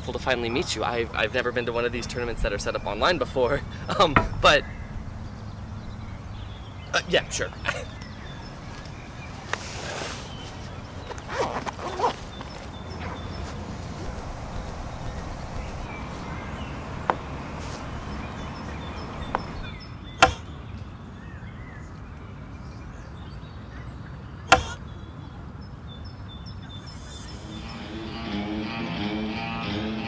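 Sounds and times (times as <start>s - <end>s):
outdoor background noise: 0.0s - 30.0s
music: 27.3s - 30.0s.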